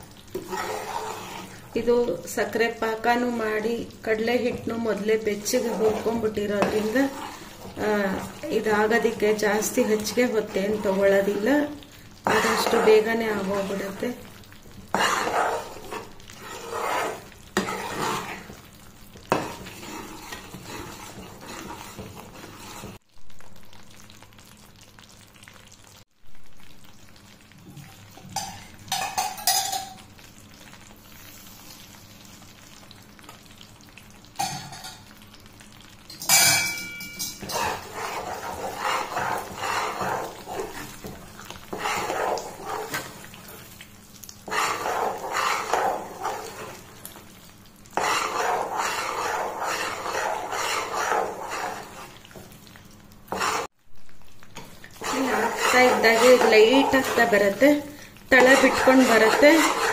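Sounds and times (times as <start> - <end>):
spatula scraping and stirring batter: 0.0 - 23.0, 36.2 - 53.8, 54.6 - 59.9
batter sizzling and bubbling: 0.0 - 59.9.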